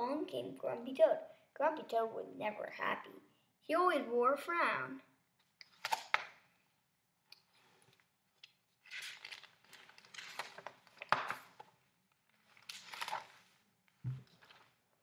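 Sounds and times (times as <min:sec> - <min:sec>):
book pages rustling and flapping: 0:07.6 - 0:15.0.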